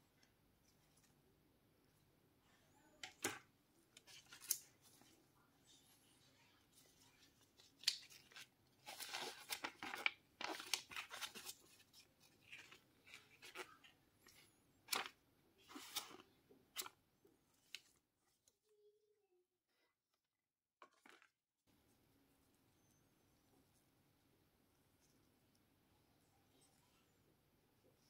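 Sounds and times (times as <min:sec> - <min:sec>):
paper leaflet rustling: 0:06.7 - 0:16.9.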